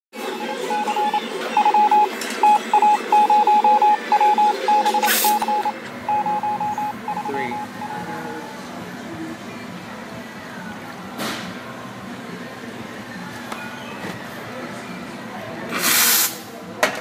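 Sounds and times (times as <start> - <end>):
rapid electronic beeps: 0.2 - 8.3.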